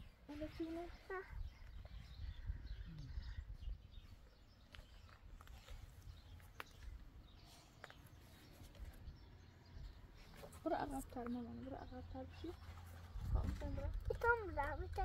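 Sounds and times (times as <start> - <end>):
low wind rumble on microphone: 0.0 - 5.1, 12.4 - 15.0.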